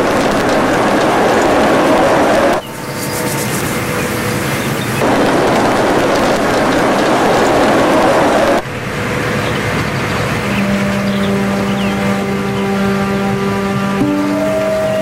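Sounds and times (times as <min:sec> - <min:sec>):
loud rushing noise: 0:00.0 - 0:12.6
held musical notes: 0:08.7 - 0:15.0.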